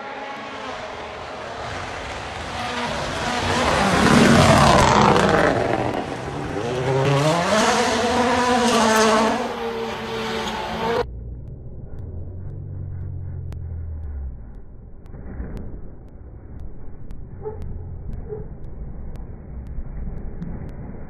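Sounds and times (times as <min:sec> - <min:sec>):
rally car passing at speed: 0:00.0 - 0:11.0
rally car engine revving: 0:00.0 - 0:15.7.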